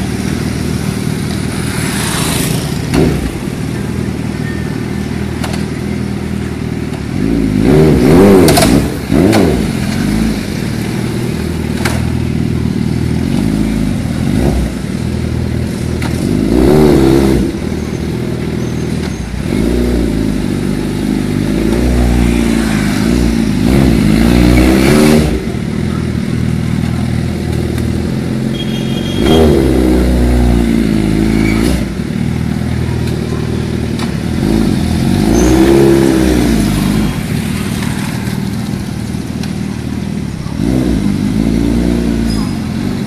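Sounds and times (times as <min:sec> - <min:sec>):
quad bike engine revving: 0:07.2 - 0:10.6, 0:15.9 - 0:17.9, 0:19.4 - 0:26.9, 0:27.5 - 0:38.3, 0:40.3 - 0:43.0.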